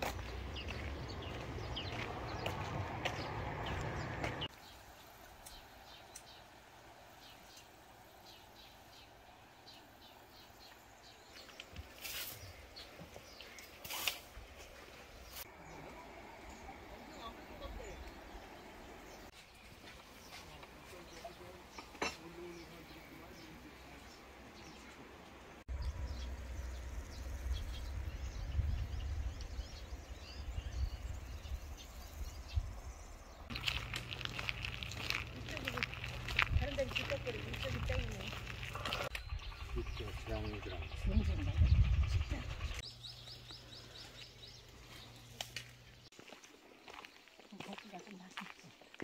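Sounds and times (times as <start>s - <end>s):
wind buffeting microphone: 25.7s - 33.4s, 34.4s - 42.8s
bird chirps: 25.7s - 46.2s.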